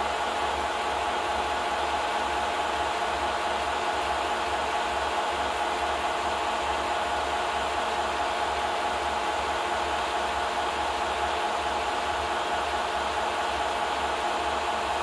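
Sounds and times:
film projector whirring: 0:00.0 - 0:15.0.

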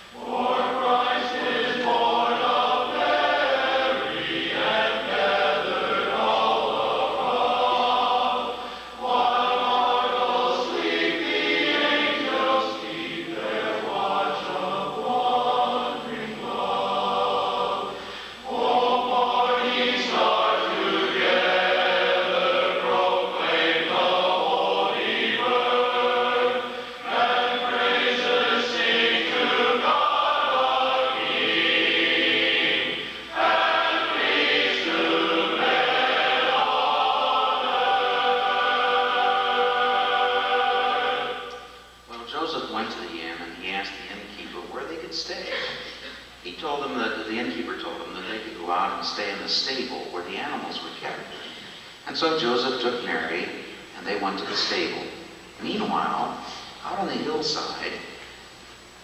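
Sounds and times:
men's chorus singing a cappella: 0:00.0 - 0:41.8.

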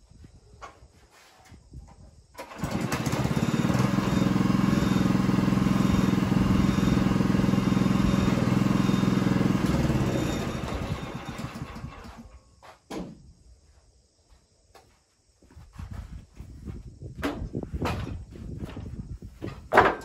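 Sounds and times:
sawmill engine running: 0:02.4 - 0:12.3.

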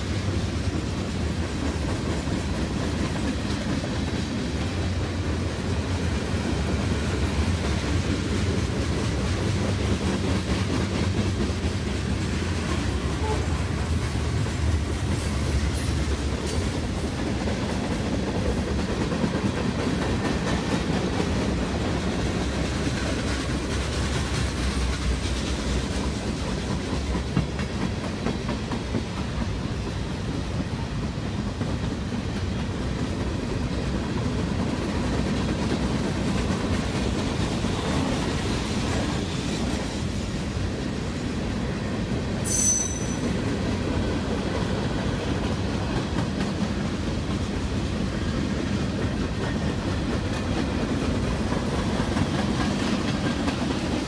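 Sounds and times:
freight train rumbling past: 0:00.0 - 0:54.0
wheels clacking over rail joints: 0:00.0 - 0:54.0
high-pitched wheel squeal: 0:42.4 - 0:43.3.

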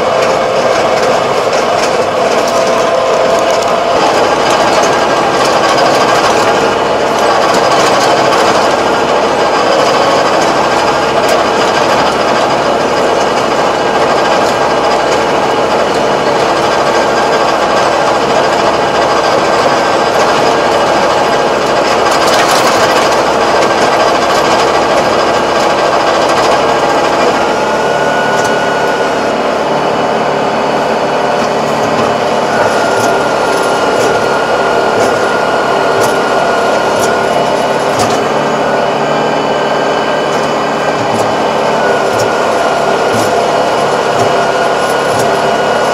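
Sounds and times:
steady high tone: 0:00.0 - 0:21.9, 0:24.5 - 0:45.9
tractor engine with rotary tiller: 0:00.0 - 0:45.9.

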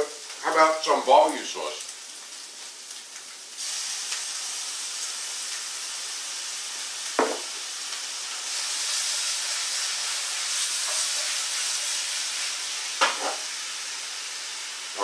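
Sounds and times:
food sizzling in a frying pan: 0:00.0 - 0:15.0
knock: 0:07.2 - 0:07.5.

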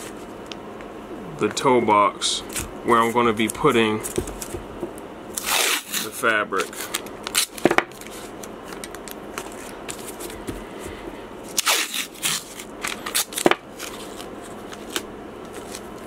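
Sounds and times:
masking tape ripping: 0:05.3 - 0:08.2, 0:11.5 - 0:15.8.

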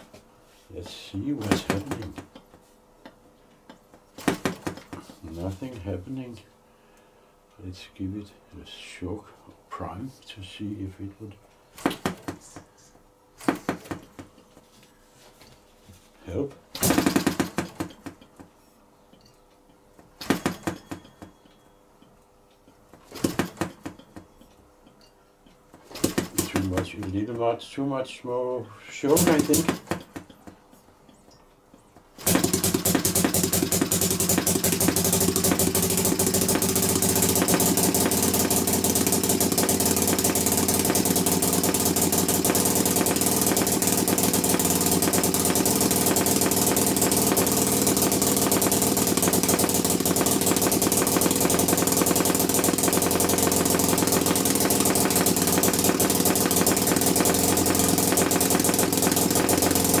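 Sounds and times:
flywheel flick: 0:29.1 - 0:30.2, 0:32.2 - 1:00.0
model engine running fast: 0:32.3 - 1:00.0.

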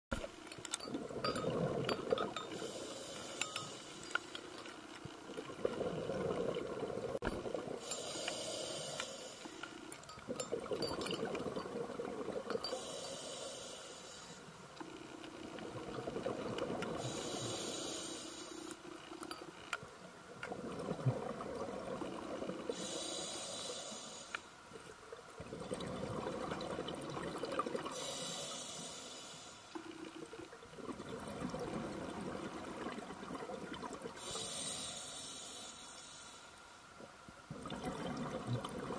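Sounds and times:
regulator hissing on inhale: 0:02.5 - 0:04.7, 0:07.8 - 0:09.9, 0:12.7 - 0:14.6, 0:17.0 - 0:18.8, 0:22.7 - 0:24.6, 0:27.9 - 0:29.8, 0:34.2 - 0:36.6
rumble of exhaled bubbles: 0:05.3 - 0:07.8, 0:20.5 - 0:22.7, 0:25.4 - 0:27.9, 0:30.2 - 0:34.2, 0:37.5 - 0:38.9.

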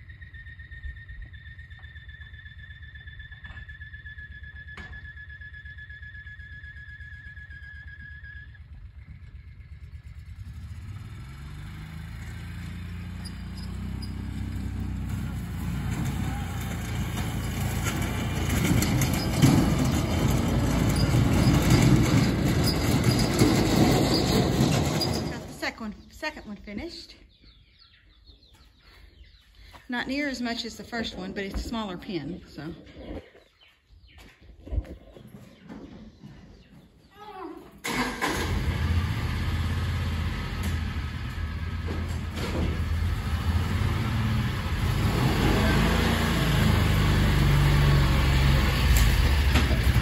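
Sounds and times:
utility vehicle engine running: 0:00.0 - 0:26.1, 0:37.8 - 0:50.0
steel trailer rattling and clanking: 0:13.2 - 0:25.6, 0:40.6 - 0:44.2, 0:47.8 - 0:50.0.

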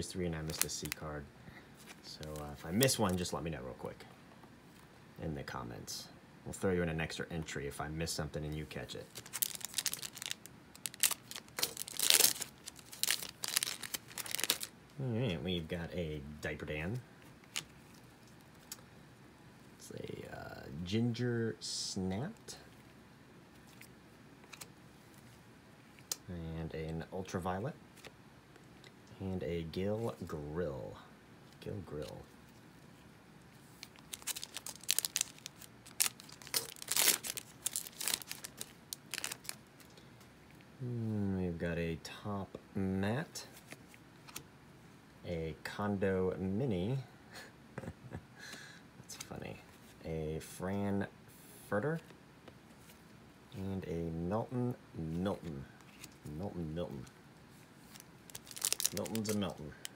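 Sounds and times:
foil wrapper tearing and crinkling: 0:09.0 - 0:14.7, 0:33.8 - 0:39.6, 0:57.9 - 0:59.8.

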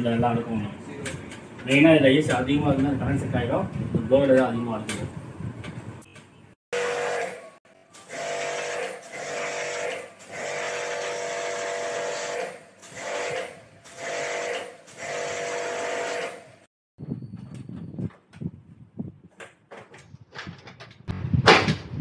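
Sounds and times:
pressure-washer pump running: 0:06.8 - 0:16.5.

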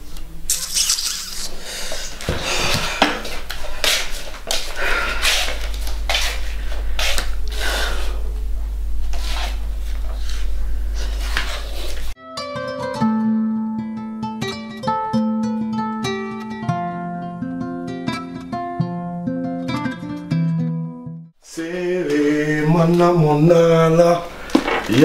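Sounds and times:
low electrical hum: 0:00.0 - 0:12.2
woman sighing breathily: 0:04.8 - 0:05.7.

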